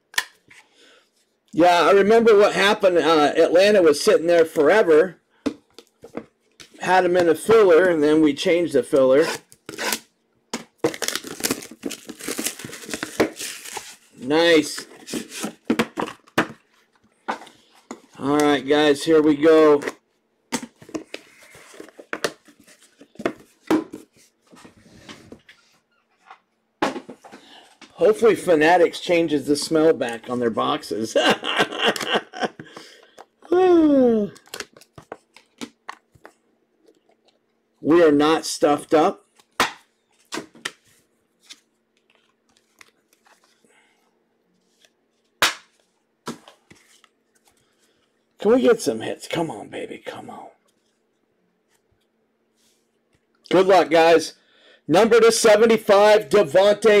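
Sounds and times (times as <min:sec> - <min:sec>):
cards rustling: 0:08.8 - 0:25.3, 0:39.3 - 0:43.6.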